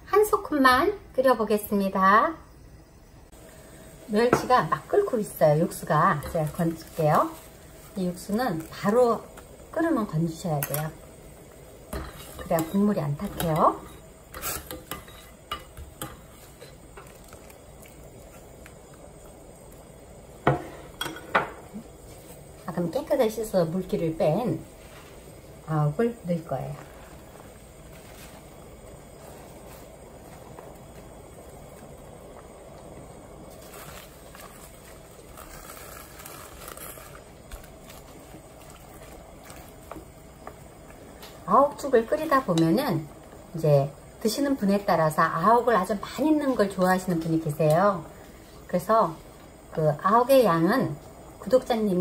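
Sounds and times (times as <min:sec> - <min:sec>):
steady low hiss: 0:00.0 - 0:52.0
broth boiling and bubbling: 0:02.8 - 0:52.0
spatula scraping pot: 0:11.9 - 0:17.1.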